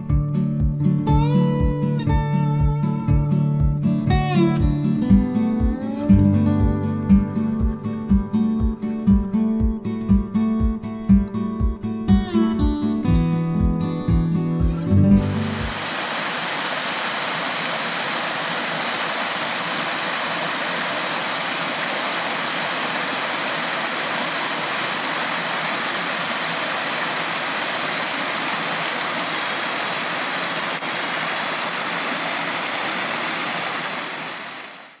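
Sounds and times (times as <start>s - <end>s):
waterfall rushing into stream: 15.2s - 35.0s.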